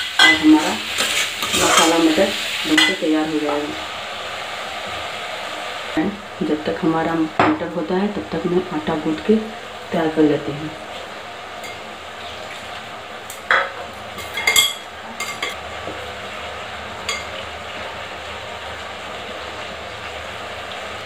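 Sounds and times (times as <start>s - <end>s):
peas sizzling in a pan: 0.0s - 21.0s.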